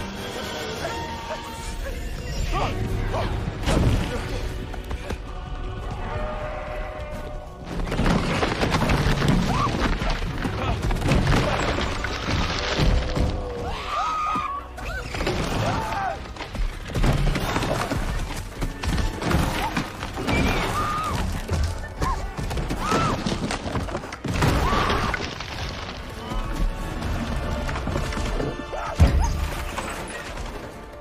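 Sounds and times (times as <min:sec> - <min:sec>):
dramatic orchestral music: 0:00.0 - 0:31.0
stampede thuds and crashes: 0:07.6 - 0:13.7, 0:15.0 - 0:30.8.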